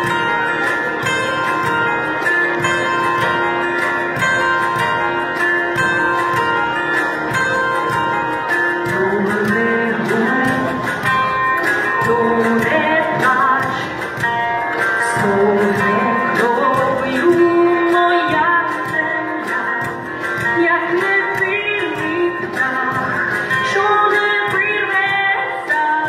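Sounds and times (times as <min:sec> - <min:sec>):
cajon beat: 0:00.0 - 0:26.0
plucked bandura: 0:00.0 - 0:26.0
woman singing: 0:08.6 - 0:26.0.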